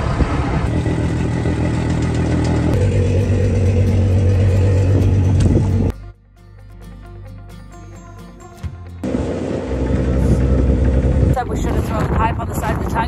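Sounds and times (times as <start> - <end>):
tractor engine running under load: 0.0 - 5.9, 9.0 - 13.0.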